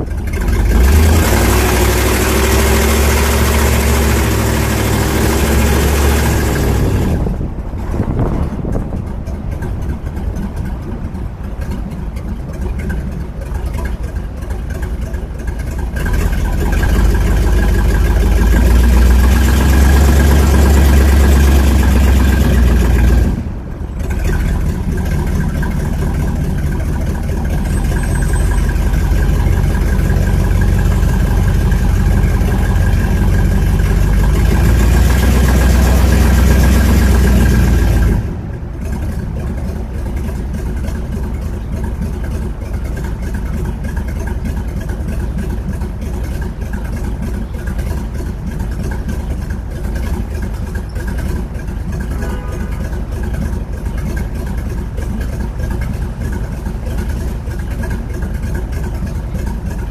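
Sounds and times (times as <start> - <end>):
car engine rumbling: 0.0 - 59.9.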